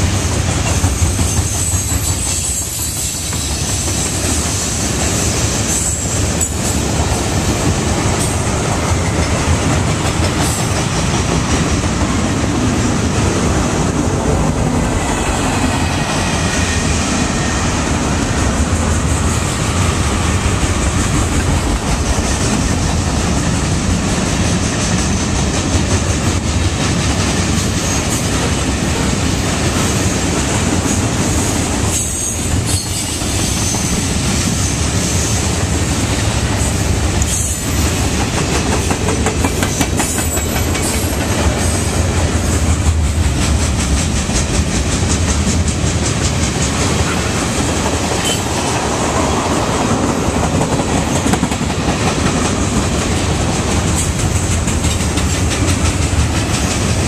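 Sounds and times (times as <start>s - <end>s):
steel wheels rumbling on rail: 0.0s - 57.0s
wheels clacking over rail joints: 37.2s - 57.0s.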